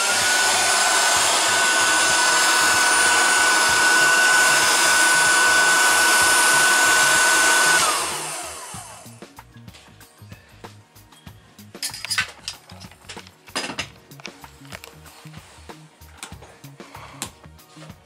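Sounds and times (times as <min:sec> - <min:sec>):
hot air gun whine and airflow: 0:00.0 - 0:09.2.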